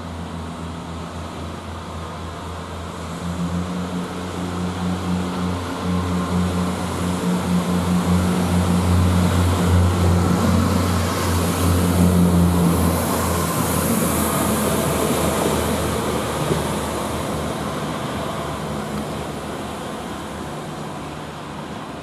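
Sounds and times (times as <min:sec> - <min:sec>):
diesel engine droning: 0:00.0 - 0:22.0
train wheels hissing on rails: 0:01.2 - 0:21.9.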